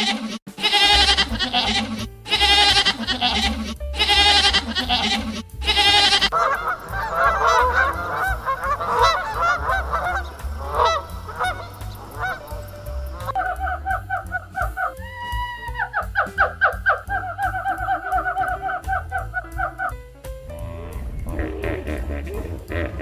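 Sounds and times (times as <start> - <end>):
music with repeated notes: 0.6 - 23.0
short overlapping animal calls: 5.7 - 14.8
long wavering animal calls: 5.8 - 19.4, 20.5 - 22.8.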